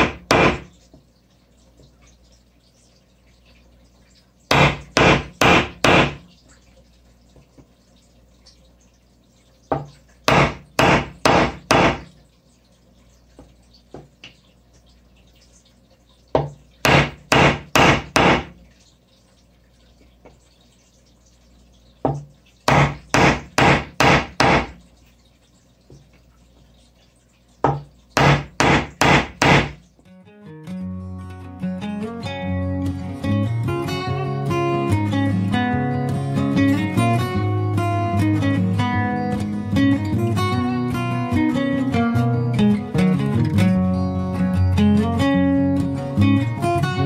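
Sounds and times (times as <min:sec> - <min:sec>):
mallet striking chisel handle: 0:00.0 - 0:00.7, 0:04.5 - 0:06.2, 0:10.3 - 0:12.1, 0:16.4 - 0:18.5, 0:22.7 - 0:24.7, 0:27.7 - 0:29.8.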